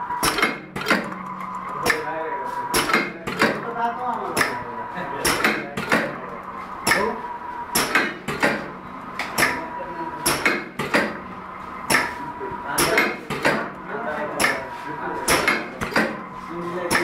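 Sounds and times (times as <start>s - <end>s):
machine sharp clacks: 0.1s - 2.1s, 2.7s - 4.6s, 5.2s - 6.2s, 7.7s - 9.6s, 10.2s - 12.2s, 12.8s - 13.8s, 15.3s - 16.2s.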